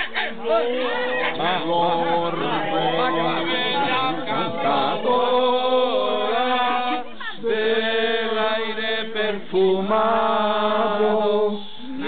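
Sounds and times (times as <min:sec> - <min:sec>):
choir singing unaccompanied: 0:00.0 - 0:12.0.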